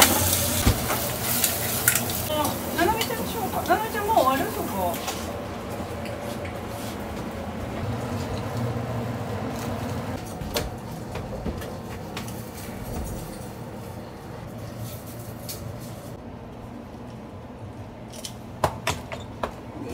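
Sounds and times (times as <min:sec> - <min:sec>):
kitchen machinery humming: 0:00.0 - 0:19.9
utensils and plates clicking on steel: 0:01.3 - 0:03.8.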